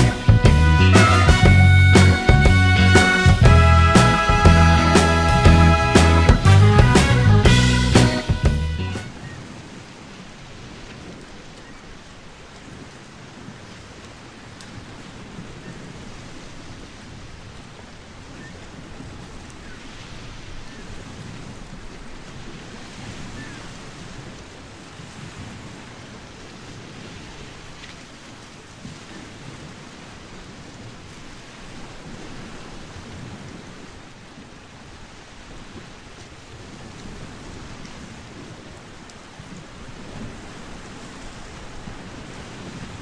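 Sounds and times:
wind buffeting microphone: 14.7 - 43.0.

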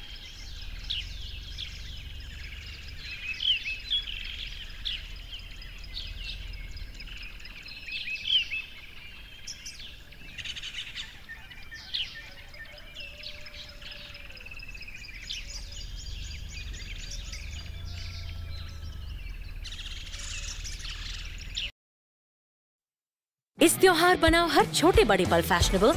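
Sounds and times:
faint low rumble: 0.0 - 9.4, 14.8 - 21.6
birds chirping and singing: 0.0 - 21.7.

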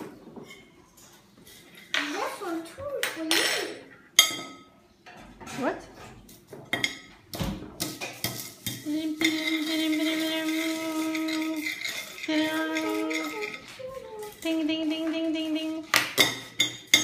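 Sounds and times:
cutlery clinking on plates: 3.0 - 14.5, 16.0 - 17.0.

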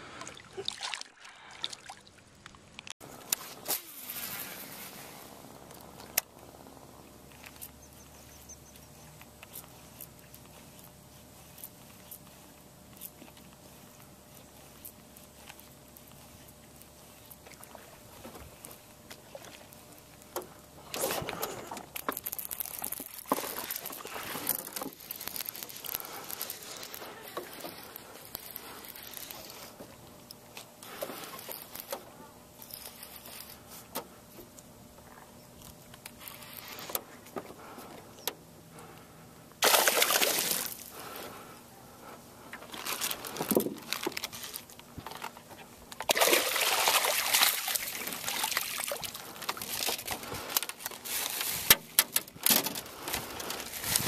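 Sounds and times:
water splashing and trickling: 0.0 - 3.0, 39.6 - 40.9, 46.0 - 50.2.

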